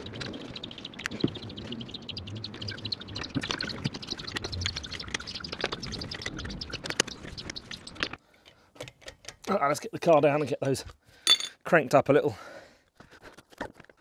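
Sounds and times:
metal clinks: 0:11.2 - 0:11.6.

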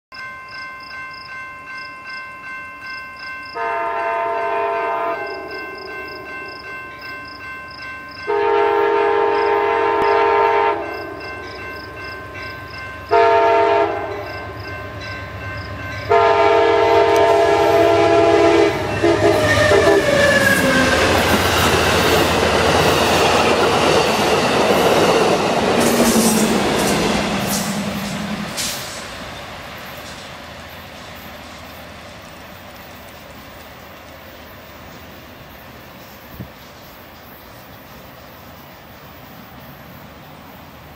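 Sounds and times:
railroad crossing bell ringing: 0:00.1 - 0:36.2
train horn blasts: 0:03.5 - 0:06.1, 0:08.2 - 0:11.6, 0:13.0 - 0:21.3
train wheels rumbling on rails: 0:04.3 - 0:40.9.

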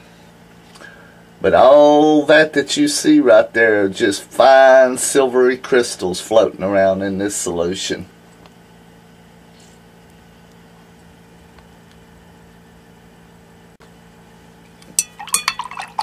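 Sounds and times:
faint steady hum: 0:00.0 - 0:16.0
glass rod clinking on beaker: 0:14.9 - 0:16.0.

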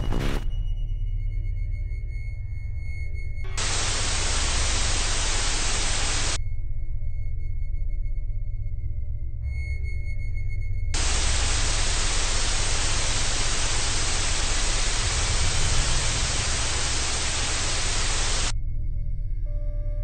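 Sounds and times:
low sustained drone: 0:03.5 - 0:06.4, 0:11.0 - 0:18.5
white noise hiss: 0:03.5 - 0:06.4, 0:11.0 - 0:18.5.

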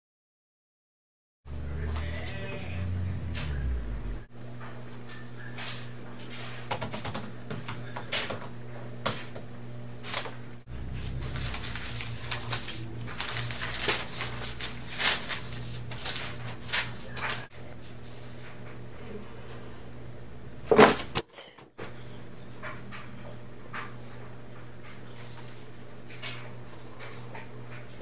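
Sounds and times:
low hum: 0:01.5 - 0:04.6, 0:10.6 - 0:14.7
paper rustling: 0:10.0 - 0:18.5, 0:25.0 - 0:26.3.

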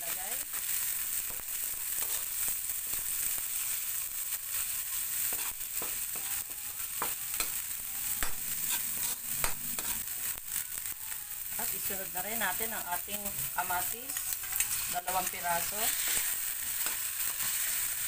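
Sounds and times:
onion sizzling in hot oil: 0:00.0 - 0:18.0
metal ladle scraping a pan: 0:08.5 - 0:10.1, 0:14.1 - 0:18.0.

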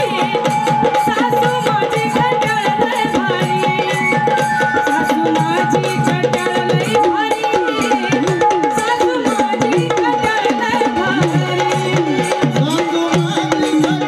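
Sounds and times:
hand drums beating fast: 0:00.0 - 0:14.0.

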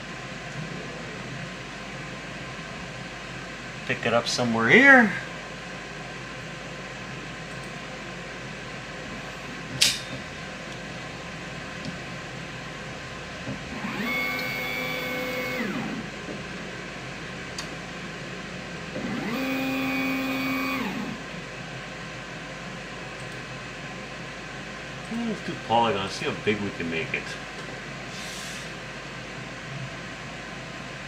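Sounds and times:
steady background hum: 0:00.0 - 0:31.0
sharp click: 0:09.8 - 0:10.1
stepper motor whine: 0:13.5 - 0:16.2, 0:18.9 - 0:21.4.

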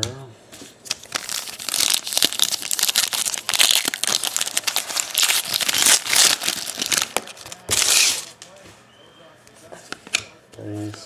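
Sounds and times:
wrapper crinkling and tearing: 0:00.9 - 0:08.4.

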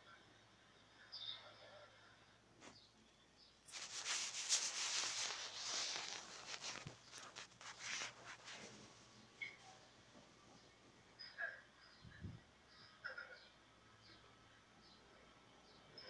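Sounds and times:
scratchy rubbing on carpet: 0:03.7 - 0:09.1.

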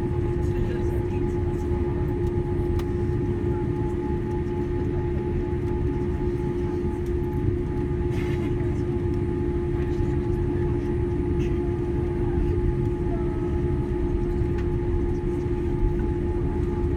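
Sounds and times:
airliner low rumble: 0:00.0 - 0:16.9.

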